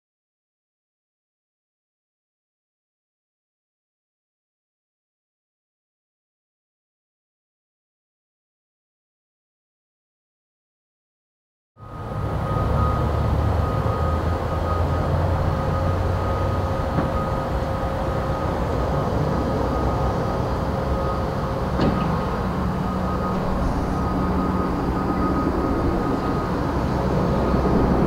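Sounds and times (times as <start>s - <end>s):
propeller plane engines droning: 11.8s - 28.0s.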